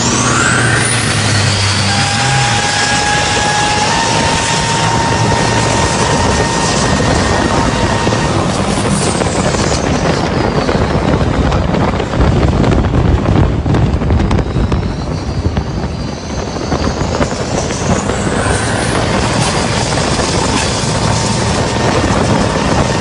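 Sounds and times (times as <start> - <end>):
boat engine running hard: 0.0 - 23.0
rushing wind: 0.0 - 23.0.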